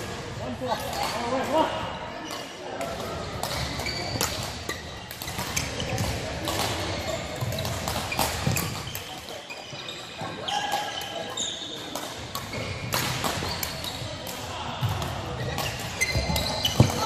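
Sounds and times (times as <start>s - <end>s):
badminton rackets hitting shuttlecocks: 2.2s - 17.0s
shoes squeaking on floor: 3.4s - 14.2s, 15.3s - 17.0s.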